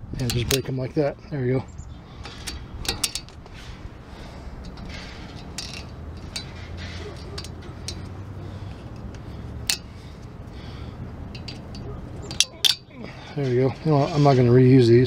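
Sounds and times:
pliers clicking on metal clips: 0:02.2 - 0:03.4, 0:04.6 - 0:08.2, 0:11.4 - 0:12.9.

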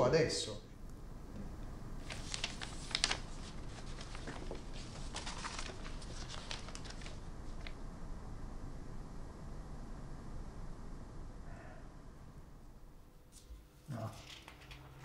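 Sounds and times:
paper rustling: 0:02.0 - 0:07.8.

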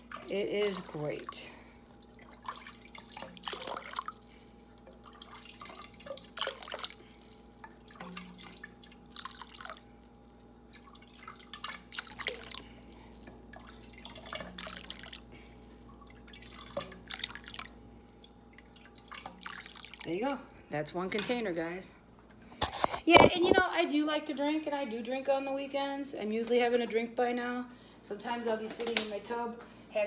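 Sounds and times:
broth splashing and dripping: 0:00.0 - 0:20.8
faint steady hum: 0:00.0 - 0:30.0.

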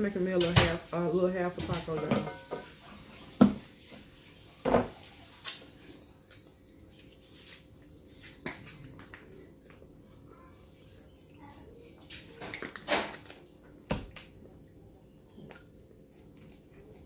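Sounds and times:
tableware knocking and clicking: 0:02.0 - 0:02.7.

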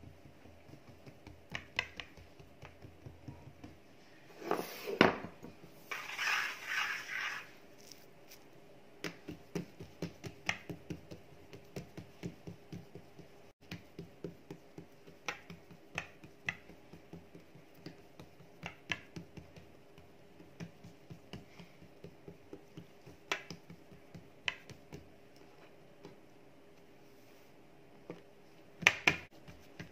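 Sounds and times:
fingertips patting dough: 0:00.0 - 0:04.0, 0:08.9 - 0:26.9, 0:28.0 - 0:29.9.

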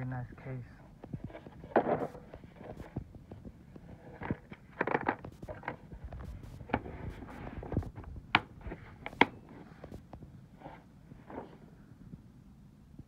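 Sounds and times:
plastic case handling: 0:01.0 - 0:10.0.

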